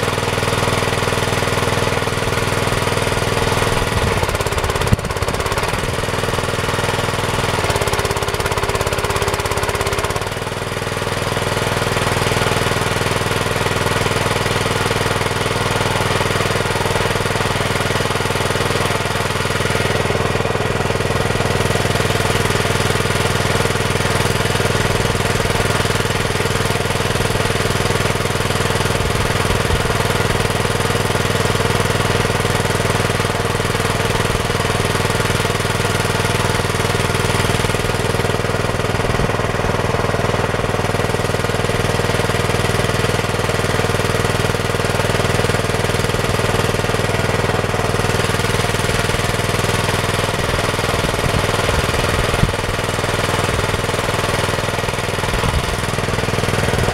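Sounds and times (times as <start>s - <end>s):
small engine idling: 0.0s - 56.9s.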